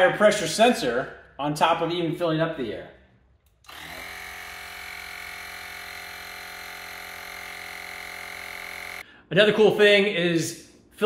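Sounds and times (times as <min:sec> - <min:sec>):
tire inflator buzzing hum: 0:03.5 - 0:09.0.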